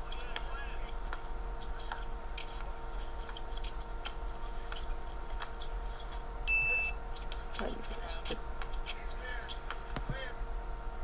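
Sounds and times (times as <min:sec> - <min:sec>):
steady electrical hum: 0:00.0 - 0:11.0
short high-pitched beep: 0:06.5 - 0:07.0.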